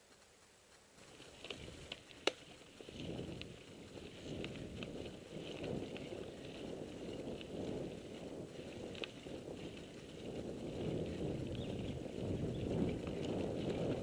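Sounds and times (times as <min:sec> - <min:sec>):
sharp clicks: 0:01.0 - 0:05.0
bike tyres rumbling on dirt: 0:01.0 - 0:14.0.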